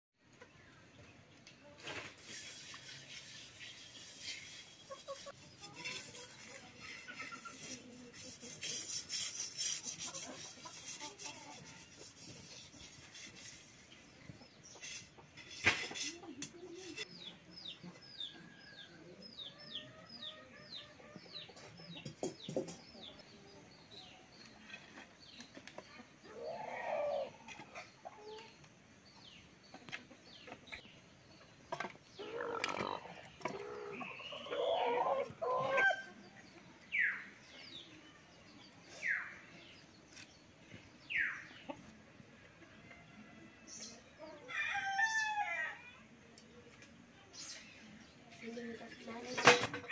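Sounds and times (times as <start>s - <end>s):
hand scraping wet clay: 1.8s - 14.0s
chicks peeping: 4.6s - 8.4s
hen calling: 32.2s - 36.0s.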